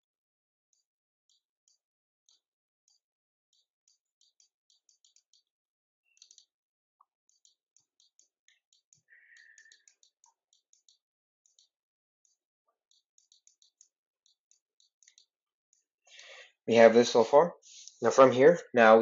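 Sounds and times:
stylus tapping on tablet screen: 0:03.6 - 0:05.5, 0:06.2 - 0:06.5, 0:07.3 - 0:15.9.

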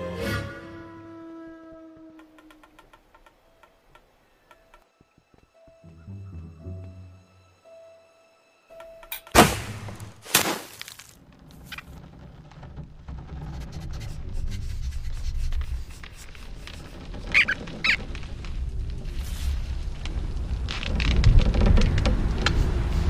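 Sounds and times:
short high squeaks: 0:16.6 - 0:18.1
low rumble: 0:18.0 - 0:23.0.

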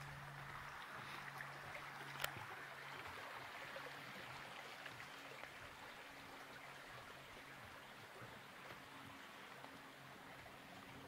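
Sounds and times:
stream running over stones: 0:00.0 - 0:11.0.

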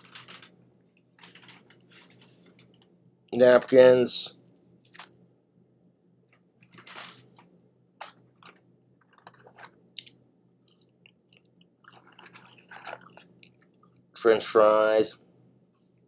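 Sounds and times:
paper carton rustling: 0:01.2 - 0:02.7, 0:06.7 - 0:08.6
chewing fries: 0:08.0 - 0:14.2.

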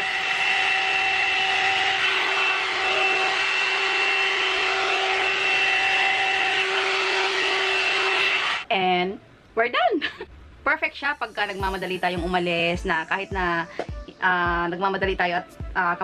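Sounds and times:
hot air brush fan whine: 0:00.0 - 0:08.7.

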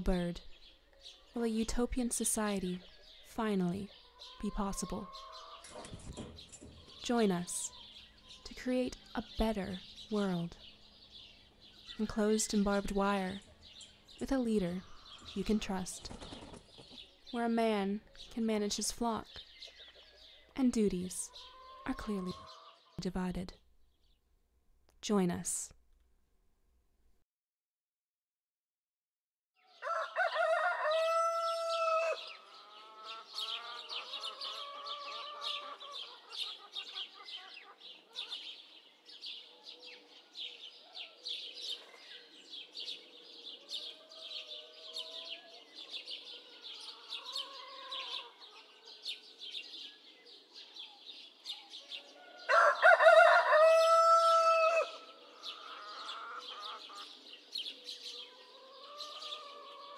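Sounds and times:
chickens clucking: 0:03.6 - 0:08.5, 0:21.2 - 0:22.9, 0:29.9 - 0:38.7, 0:43.6 - 0:49.0, 0:52.0 - 0:57.3, 0:58.2 - 0:59.9
rooster crowing: 0:29.7 - 0:36.3, 0:43.6 - 0:48.7, 0:52.1 - 0:56.8, 0:58.3 - 0:59.9.

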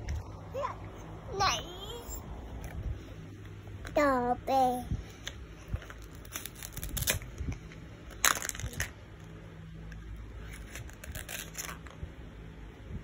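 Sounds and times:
velcro tearing: 0:06.0 - 0:07.3, 0:10.5 - 0:12.0.

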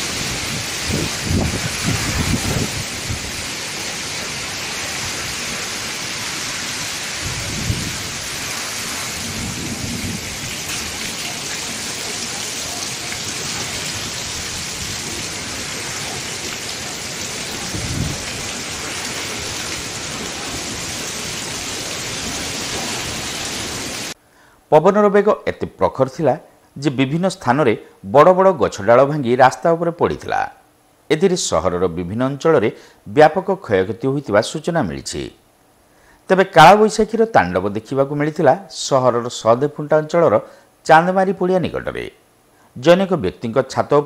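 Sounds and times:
low thunder rumbles: 0:00.0 - 0:03.5, 0:07.1 - 0:12.0, 0:13.2 - 0:23.8
heavy rain and wind: 0:00.0 - 0:24.2.

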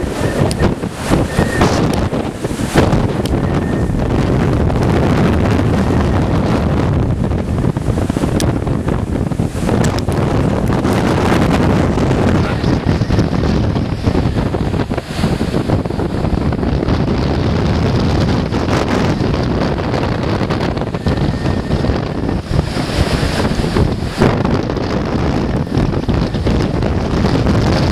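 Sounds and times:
gale wind buffeting microphone: 0:00.0 - 0:27.9
surf breaking on breakwater: 0:00.0 - 0:27.9.

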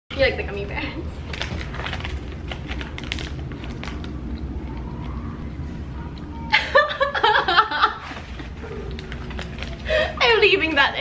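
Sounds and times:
low background rumble: 0:00.1 - 0:11.0
plastic snack bag crinkling: 0:01.2 - 0:05.2, 0:08.0 - 0:10.1
woman laughing loudly: 0:06.5 - 0:08.1.

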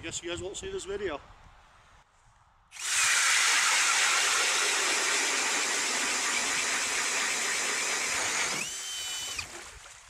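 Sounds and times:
power ice auger boring ice: 0:02.8 - 0:09.6.

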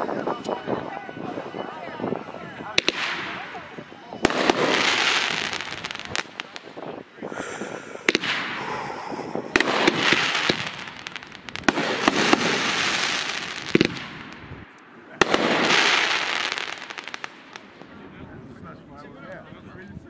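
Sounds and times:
firework shells bursting: 0:08.0 - 0:08.9, 0:09.5 - 0:17.8.

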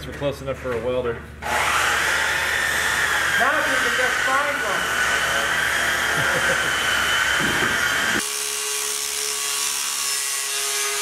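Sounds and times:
angle grinder whining on metal: 0:01.4 - 0:11.0.

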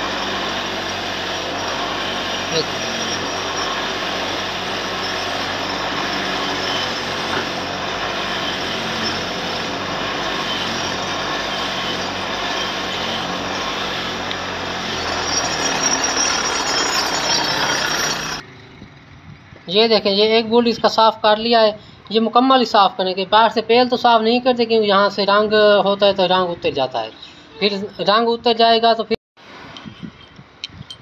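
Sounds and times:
power tool running: 0:00.0 - 0:18.4.

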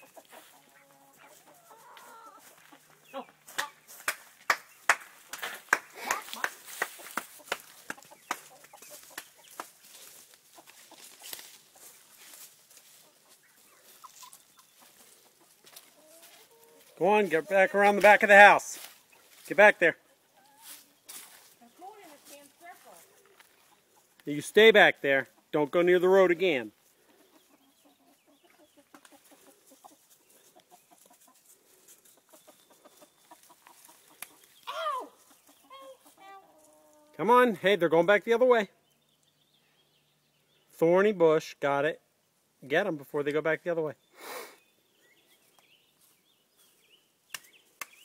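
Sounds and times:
chickens clucking softly: 0:00.0 - 0:03.9, 0:06.0 - 0:17.7, 0:20.0 - 0:21.8, 0:27.0 - 0:37.2
footsteps on dirt and brush: 0:00.0 - 0:19.8, 0:20.4 - 0:23.9.

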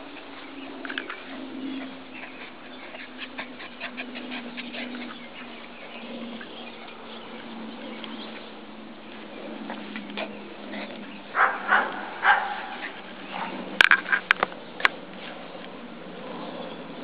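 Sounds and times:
steady low hum: 0:00.0 - 0:17.0
puppies yipping: 0:00.3 - 0:08.6, 0:09.9 - 0:13.6.

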